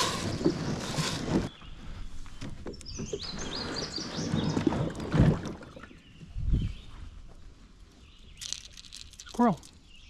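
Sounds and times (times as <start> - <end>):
kayak scraping against wood: 0.0 - 5.8
bird singing: 1.5 - 5.0, 8.0 - 10.0.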